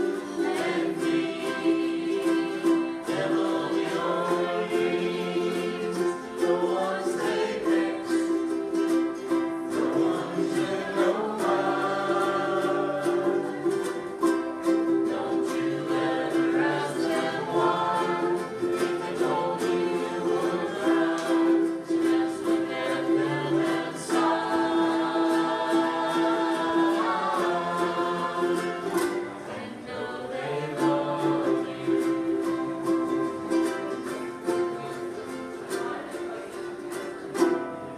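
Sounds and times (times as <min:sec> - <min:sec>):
ukuleles strumming: 0:00.0 - 0:37.9
voices singing together: 0:00.0 - 0:37.9.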